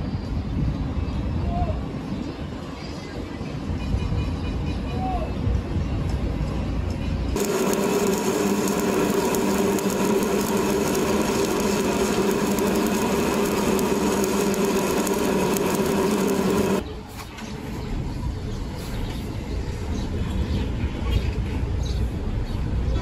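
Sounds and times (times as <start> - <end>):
steady hum: 7.4 - 16.8
welding arc crackling: 7.4 - 16.8.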